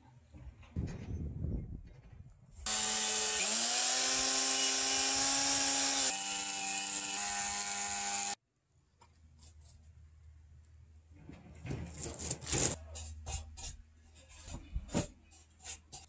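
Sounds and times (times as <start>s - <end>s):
circular saw cutting timber: 2.6s - 8.4s.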